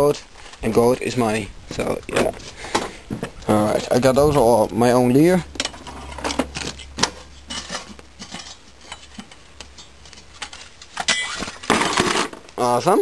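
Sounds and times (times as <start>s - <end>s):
metal parts clinking and clanking: 5.6s - 12.3s.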